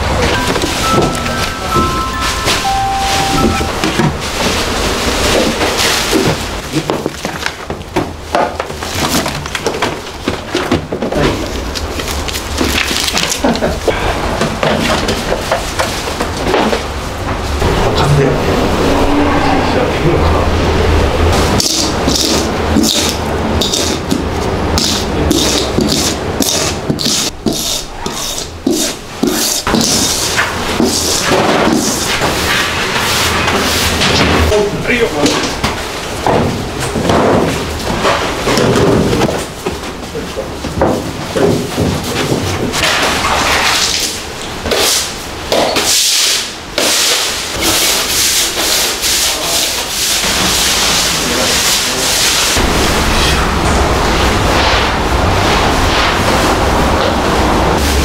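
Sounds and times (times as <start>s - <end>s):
hand scraper scraping powder on floor: 24.9s - 32.0s
scrub brush scrubbing wet floor: 43.2s - 52.6s.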